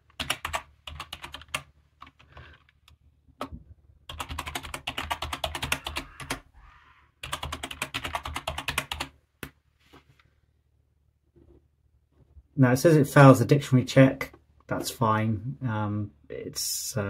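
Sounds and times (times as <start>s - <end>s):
keyboard typing: 0.1s - 3.0s, 4.1s - 6.5s, 7.2s - 9.2s.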